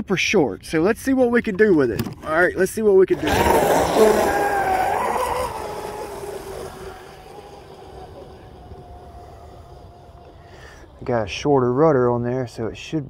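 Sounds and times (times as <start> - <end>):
water spray rushing: 3.2 - 10.1
electric motor whine: 3.2 - 11.0.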